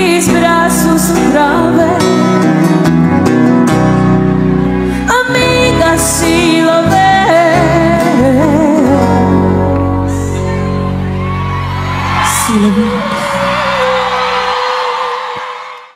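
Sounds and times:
woman singing with vibrato: 0:00.0 - 0:02.5, 0:05.0 - 0:10.4, 0:12.2 - 0:15.6
audience whooping: 0:10.6 - 0:15.9.

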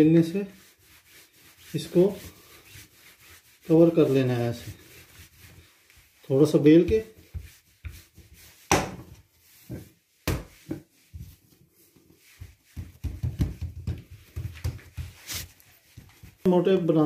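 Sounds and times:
hands patting dough: 0:00.3 - 0:17.0
rolling pin knocking on counter: 0:12.7 - 0:15.0.

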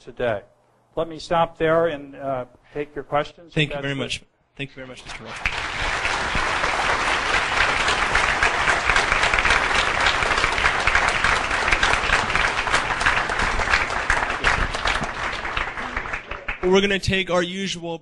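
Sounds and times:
audience applauding: 0:05.2 - 0:16.9.

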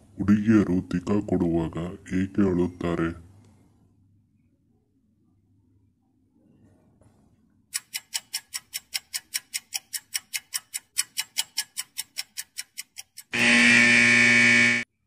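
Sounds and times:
clock ticking rapidly: 0:07.8 - 0:13.4.

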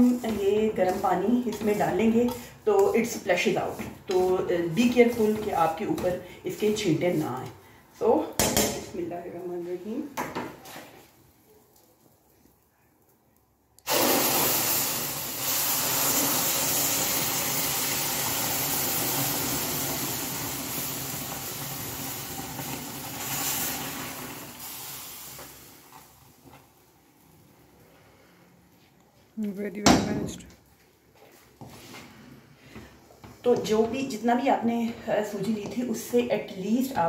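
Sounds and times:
syrup hissing and sizzling in pan: 0:00.0 - 0:07.2, 0:13.9 - 0:27.3.

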